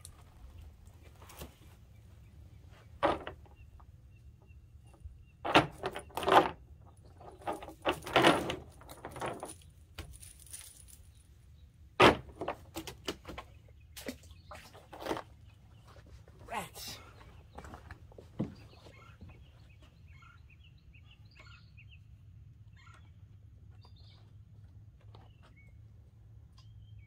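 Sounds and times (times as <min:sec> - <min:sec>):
net weights clattering on wood: 0:03.0 - 0:03.5, 0:05.4 - 0:11.0, 0:12.0 - 0:13.3.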